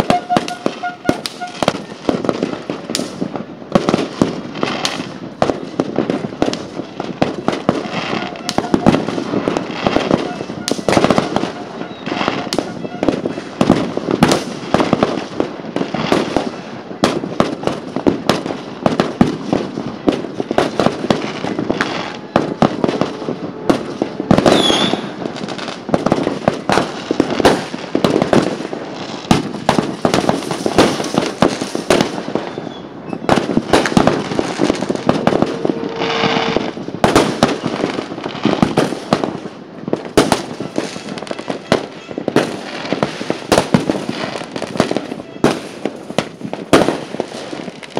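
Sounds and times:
firework whistle: 0.0s - 2.2s, 7.6s - 14.5s, 20.4s - 25.8s, 31.8s - 38.8s, 40.2s - 46.0s
fireworks banging and crackling: 0.0s - 47.9s.

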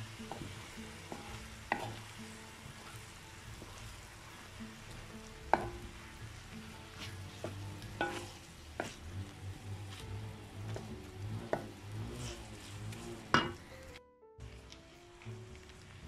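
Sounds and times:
spatula stirring noodles: 0.0s - 13.6s
noodles sizzling in a wok: 0.0s - 16.0s
spatula clacking against wok: 0.1s - 4.0s, 4.8s - 13.6s.

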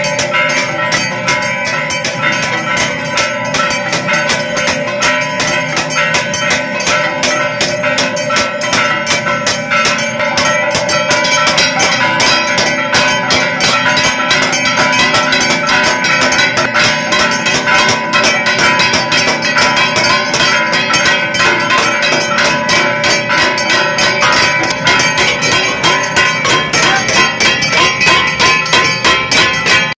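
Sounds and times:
brass bells clanging rapidly: 0.0s - 30.0s.

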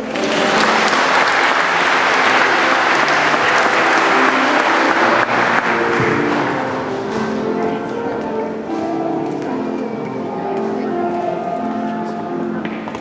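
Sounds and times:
crowd applauding: 0.0s - 7.7s
soft background music: 0.0s - 13.0s.

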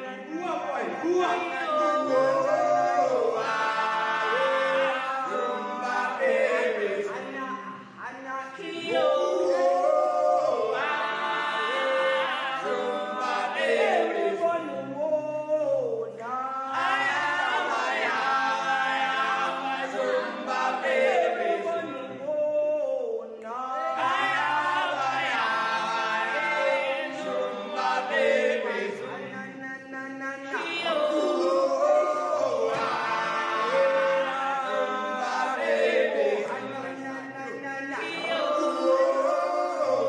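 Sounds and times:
voices singing in harmony: 0.0s - 40.0s.

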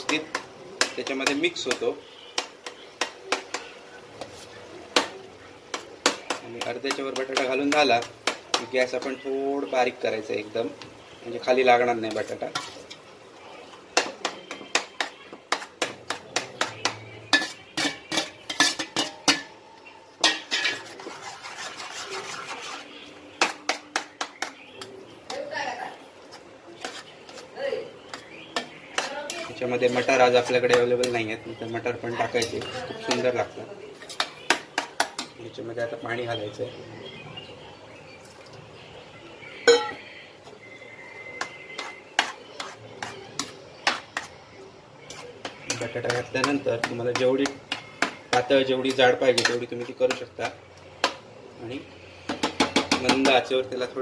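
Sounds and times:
spoon scraping in pan: 0.0s - 25.5s, 26.2s - 35.4s, 39.4s - 53.5s
spoon clinking against steel bowl: 14.0s - 21.1s, 39.6s - 40.0s, 45.1s - 50.4s
steel vessel clanking on pan: 14.0s - 24.7s, 39.6s - 40.0s.

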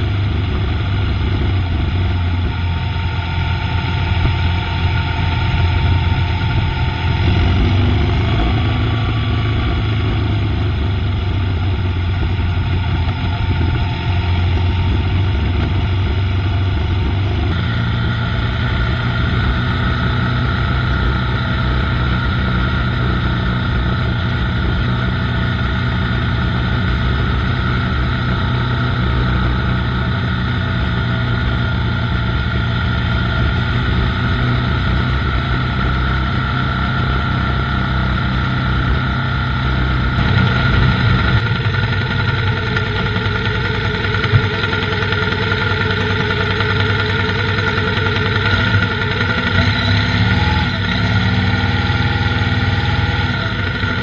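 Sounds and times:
motorcycle engine running: 0.0s - 54.0s
road and wind noise: 0.0s - 54.0s.

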